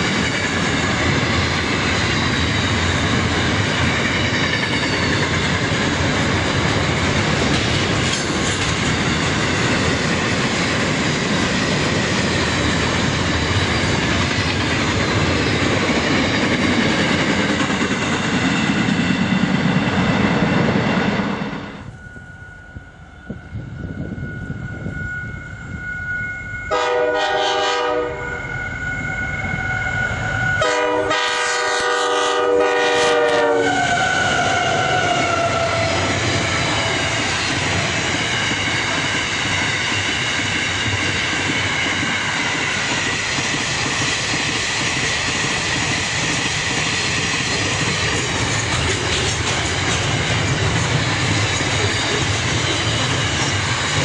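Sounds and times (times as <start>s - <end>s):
train wagons rumbling and clattering: 0.0s - 22.0s, 26.6s - 54.0s
locomotive passing: 0.0s - 54.0s
locomotive horn blasts: 26.6s - 28.8s, 29.4s - 36.0s.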